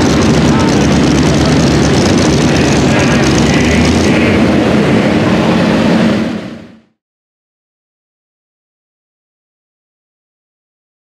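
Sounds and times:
supercharged truck engine under load: 0:00.0 - 0:07.0.

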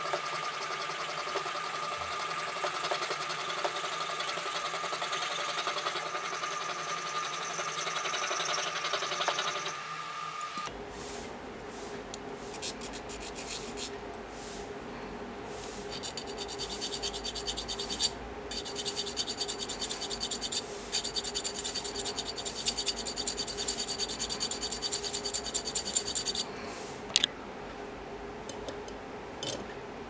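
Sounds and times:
metal file rasping: 0:00.0 - 0:09.8, 0:15.9 - 0:26.4.

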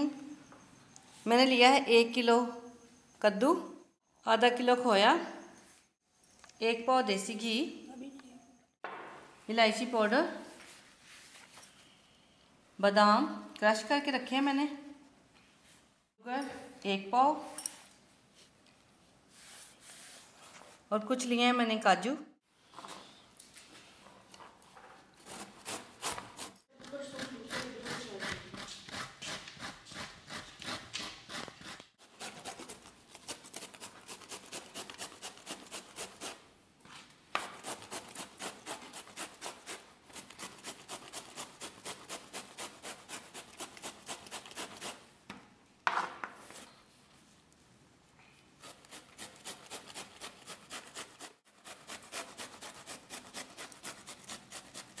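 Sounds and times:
gourd rasping on grater: 0:27.2 - 0:36.4, 0:48.6 - 0:55.0.

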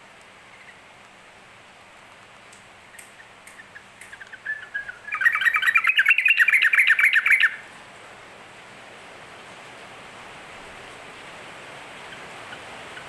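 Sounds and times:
bird singing chattering notes: 0:03.0 - 0:07.6.

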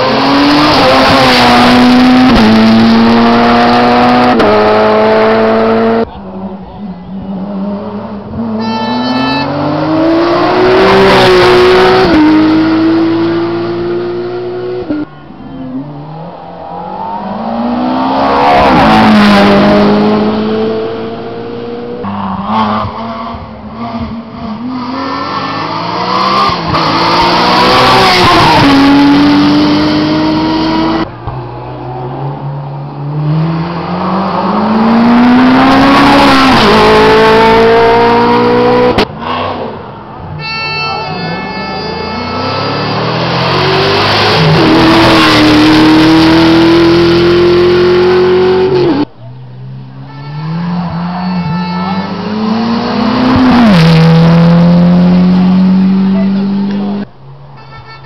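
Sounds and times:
race cars accelerating past: 0:50.4 - 0:57.1.

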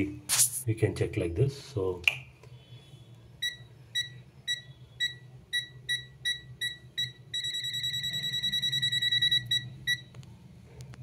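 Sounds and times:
short high-pitched beeps: 0:03.4 - 0:10.1.

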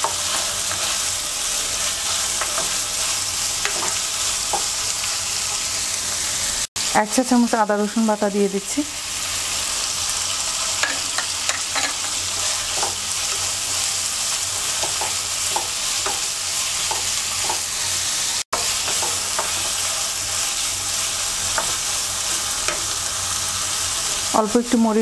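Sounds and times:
food sizzling in hot oil: 0:00.0 - 0:25.0
spatula scraping and tapping pan: 0:02.1 - 0:02.9, 0:03.6 - 0:04.8, 0:10.8 - 0:13.6, 0:14.6 - 0:18.0, 0:18.6 - 0:19.8, 0:21.5 - 0:23.0.

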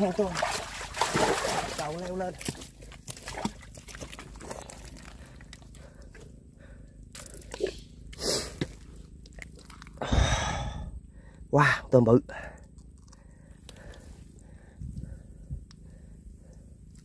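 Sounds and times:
wet mud crackling and squelching: 0:00.0 - 0:10.6, 0:12.4 - 0:17.0.

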